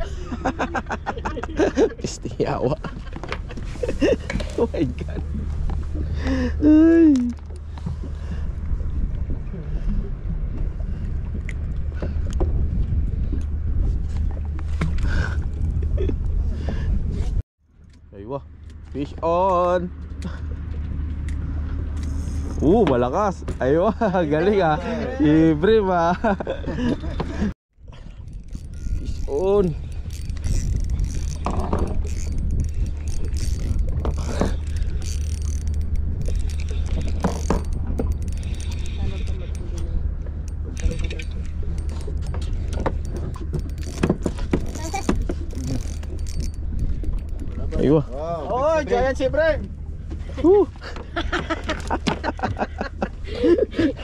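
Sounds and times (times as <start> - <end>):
boat engine rumbling: 0.0 - 54.0
fishing reel whirring and clicking: 22.0 - 22.6, 28.2 - 47.7.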